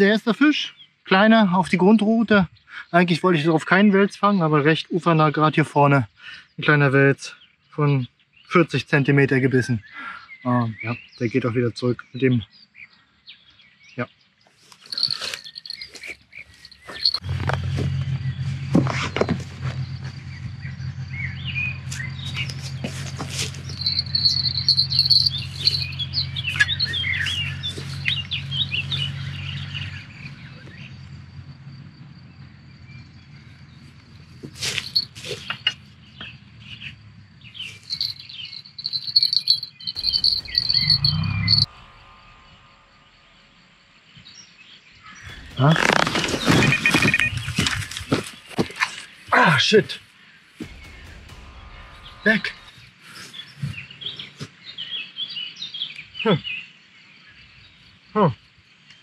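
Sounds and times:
birds chirping: 0.0s - 59.0s
high insect-like trill: 14.8s - 17.8s, 21.7s - 31.2s, 34.5s - 35.8s, 37.6s - 44.0s
low steady hum: 37.1s - 44.2s.

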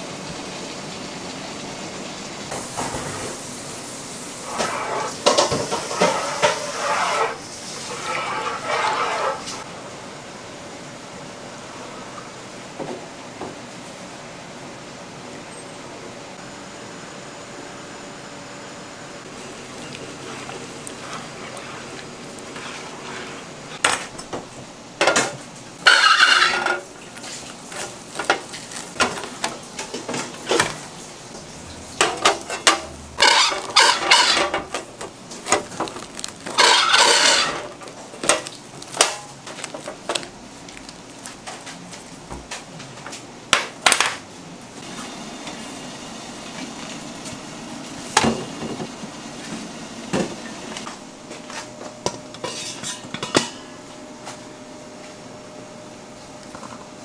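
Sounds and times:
metal scraping: 4.4s - 9.6s, 25.8s - 27.9s, 32.0s - 34.8s, 36.4s - 37.8s
metal kitchenware clattering: 25.0s - 30.8s, 31.9s - 35.7s, 36.4s - 39.4s, 52.4s - 53.7s.

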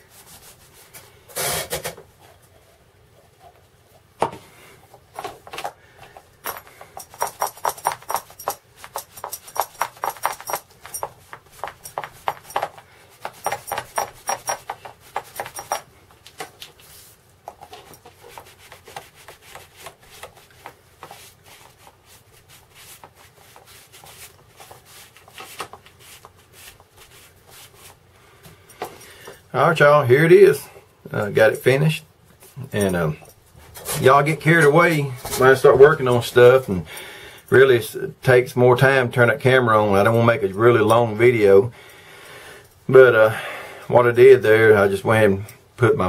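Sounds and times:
cloth rubbing on leather: 17.9s - 28.0s.

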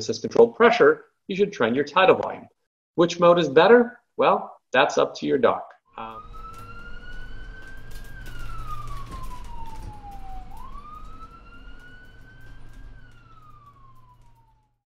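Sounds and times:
ambulance siren wailing: 5.9s - 14.8s.

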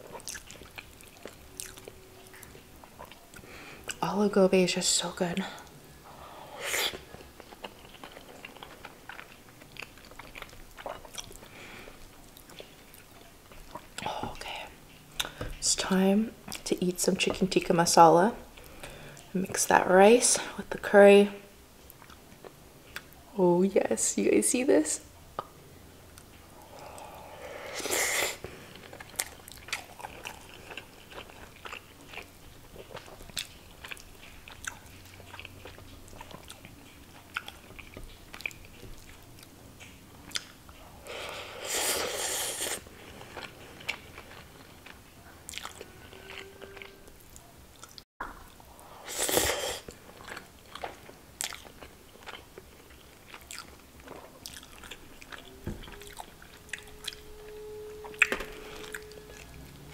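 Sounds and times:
person chewing crisp food: 0.0s - 4.0s, 6.6s - 14.1s, 26.2s - 48.0s, 48.9s - 59.9s.

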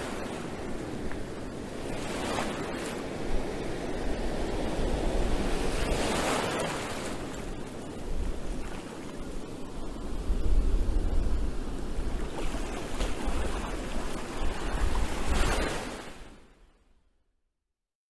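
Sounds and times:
wind buffeting microphone: 0.0s - 16.1s
waves breaking on rocks: 5.1s - 7.6s, 12.0s - 16.2s.

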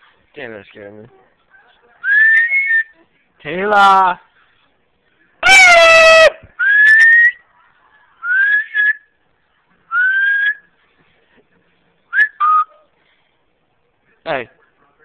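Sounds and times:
person whistling: 9.9s - 10.6s, 12.2s - 12.7s.

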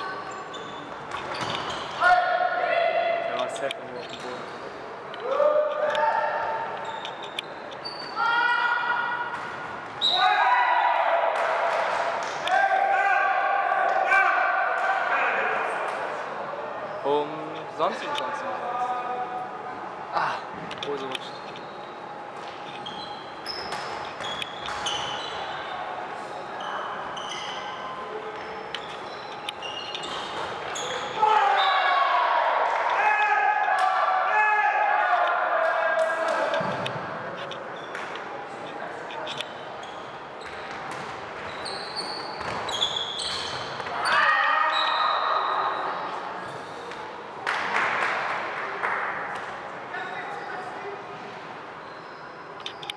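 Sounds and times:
shoes squeaking on court floor: 0.1s - 2.0s, 3.8s - 5.1s, 6.5s - 8.3s, 20.6s - 31.8s, 36.6s - 38.3s, 39.0s - 46.2s, 51.8s - 52.9s
loud shout: 5.2s - 6.6s, 8.2s - 9.3s, 10.0s - 15.8s, 31.0s - 36.6s, 44.0s - 45.8s.

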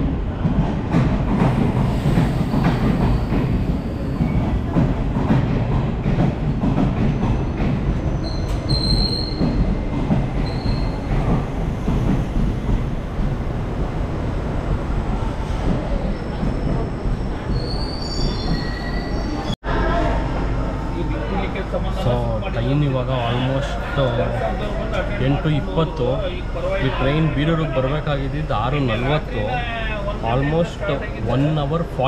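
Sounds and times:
train wheels rumbling on rails: 0.0s - 19.6s.

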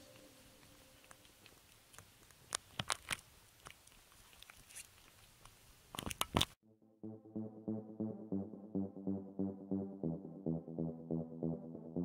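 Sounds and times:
low hiss: 0.0s - 2.4s
faint crunching clicks: 0.0s - 6.6s.

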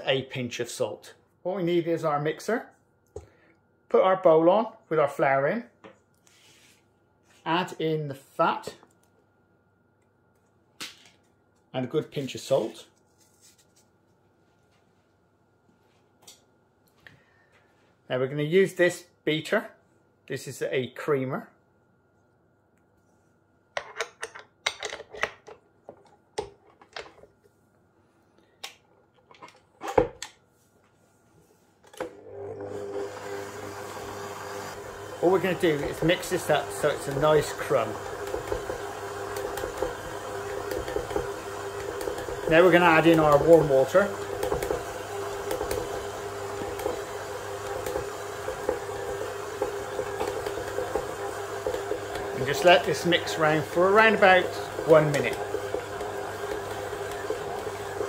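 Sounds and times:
stand mixer motor running: 32.0s - 58.0s
mixer beater clicks and knocks: 34.7s - 58.0s.

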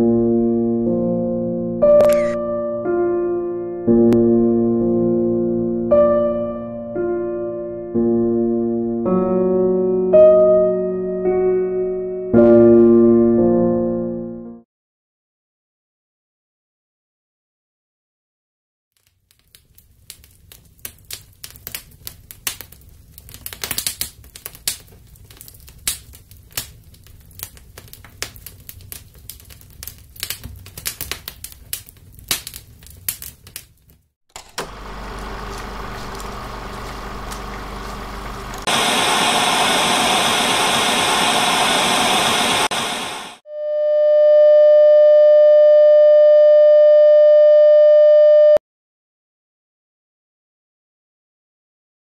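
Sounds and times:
fire crackling pops and snaps: 19.0s - 39.0s
tv static hiss: 34.8s - 43.4s.

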